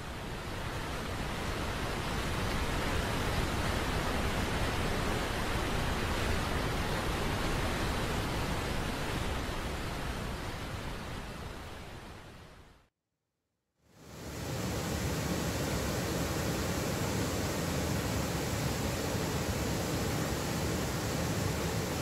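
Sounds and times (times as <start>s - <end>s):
waterfall roaring: 14.1s - 22.0s.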